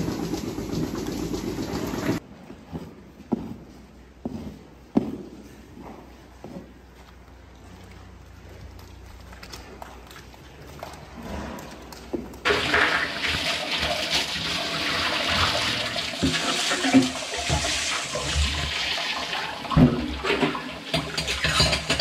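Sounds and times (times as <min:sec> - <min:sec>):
water pouring into metal tank: 0:12.4 - 0:22.0.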